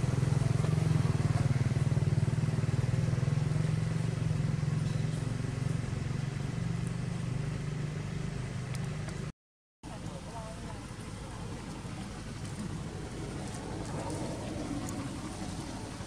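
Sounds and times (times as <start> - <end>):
small engine pulsing: 11.1 - 16.0.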